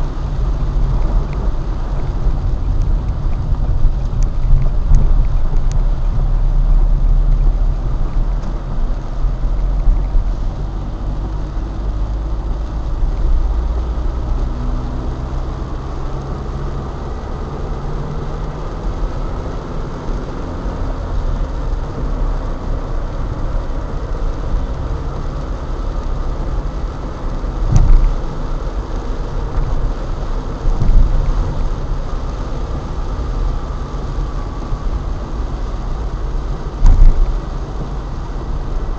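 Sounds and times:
car engine and tyres on wet road: 0.0s - 38.9s.

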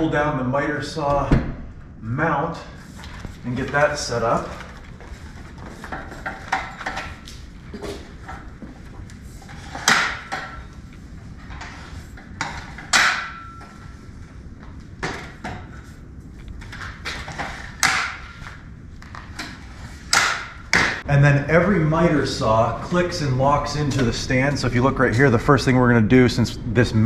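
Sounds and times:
metallic ring: 12.9s - 13.9s.

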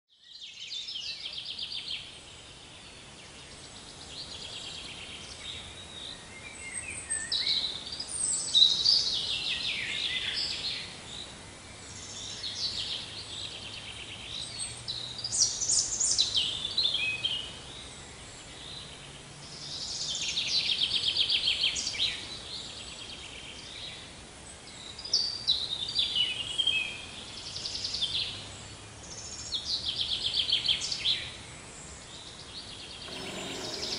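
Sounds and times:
birds singing: 32.0s - 33.9s.

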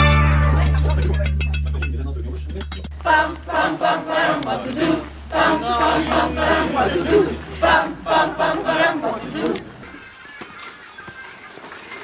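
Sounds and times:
group chanting and shouting: 2.8s - 9.9s.

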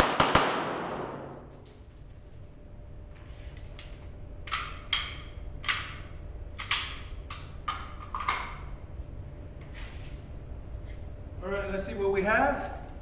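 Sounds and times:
pistol metallic clicks: 0.1s - 2.5s.

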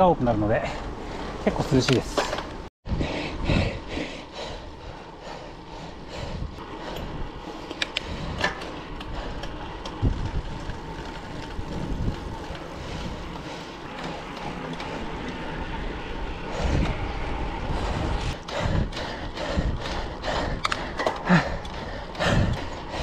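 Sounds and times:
bike tyres and drivetrain rolling: 0.0s - 23.0s
low wind rumble on microphone: 2.8s - 13.9s, 15.4s - 23.0s.

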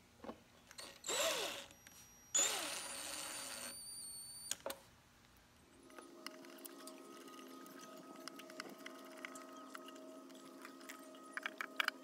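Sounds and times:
cordless driver motor whirring: 0.7s - 3.8s.

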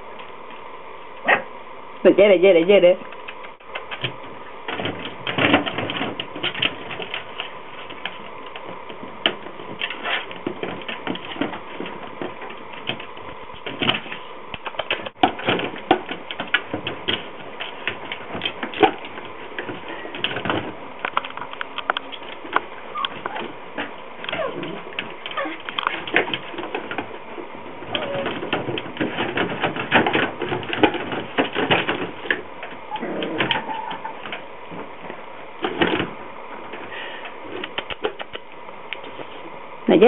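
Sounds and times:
puppy claws scratching a box: 3.8s - 20.8s.

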